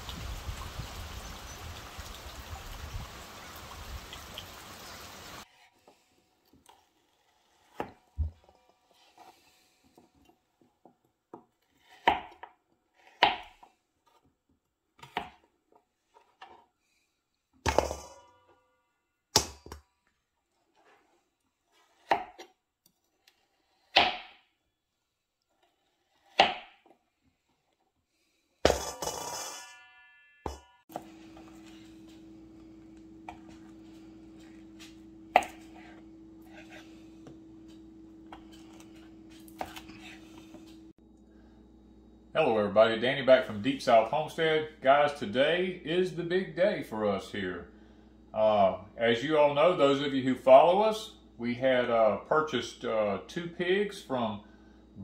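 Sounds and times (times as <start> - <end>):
low wind rumble: 0.0 - 4.1
rain falling on a pond: 0.0 - 5.4
knife chopping on plastic board: 35.3 - 36.0.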